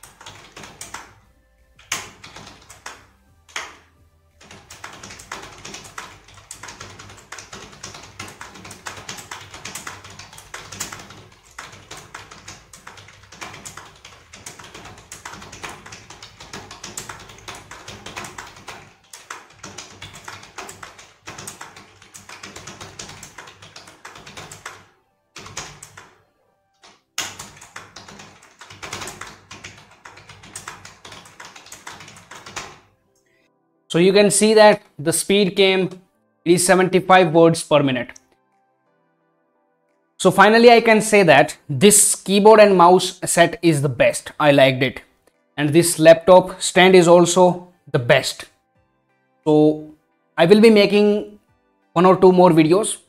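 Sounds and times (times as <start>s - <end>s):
fast typing on keyboard: 0.0s - 1.2s, 1.8s - 26.2s, 26.8s - 32.9s.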